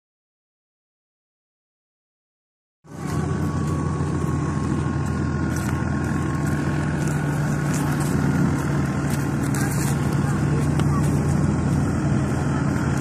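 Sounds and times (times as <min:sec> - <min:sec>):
engine humming with high whine: 0:02.9 - 0:13.0.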